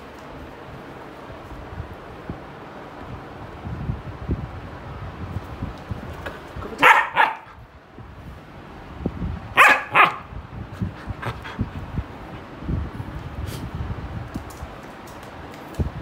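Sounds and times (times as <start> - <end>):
puppy barking: 6.7 - 7.6, 9.6 - 10.3.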